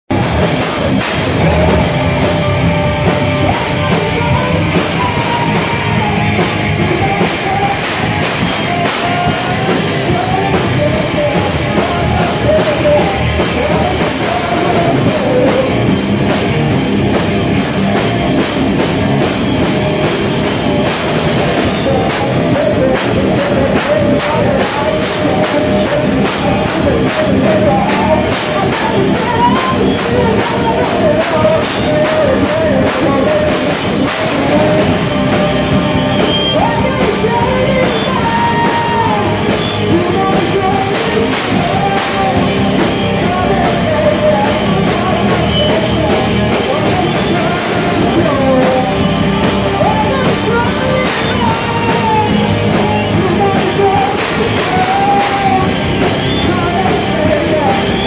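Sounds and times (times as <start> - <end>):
drums: 0.0 - 58.0
live rock band playing: 0.1 - 58.0
woman singing into a microphone: 21.6 - 34.6, 36.3 - 49.1, 49.7 - 58.0.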